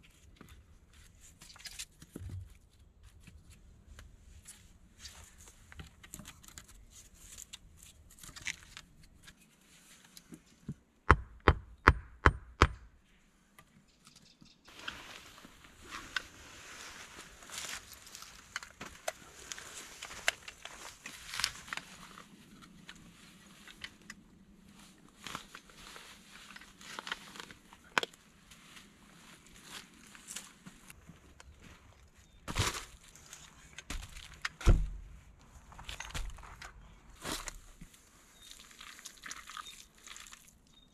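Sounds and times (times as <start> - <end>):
crackles and small knocks: 29.7 - 38.0.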